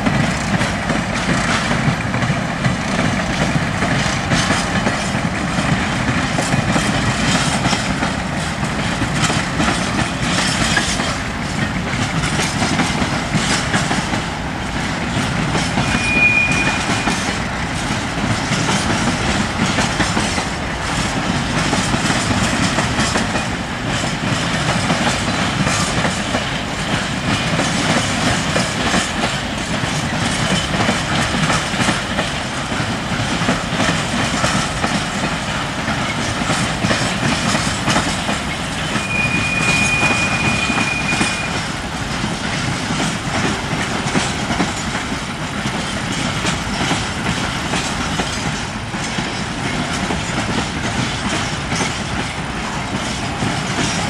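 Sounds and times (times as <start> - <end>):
wagon wheels rumbling on rails: 0.0 - 54.0
high wheel squeal: 15.7 - 17.4, 38.8 - 41.7.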